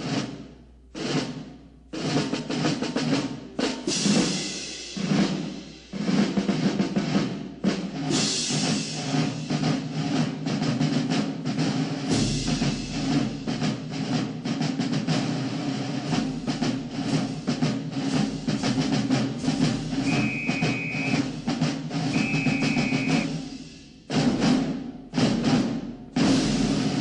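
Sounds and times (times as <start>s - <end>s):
drum-heavy music: 16.6s - 24.7s
held high tones: 20.1s - 21.3s, 22.1s - 23.3s.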